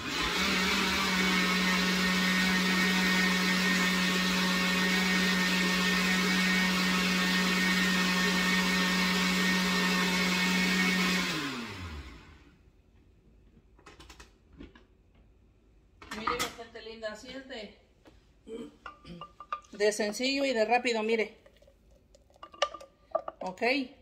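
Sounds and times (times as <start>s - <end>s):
blender motor running: 0.0s - 12.5s.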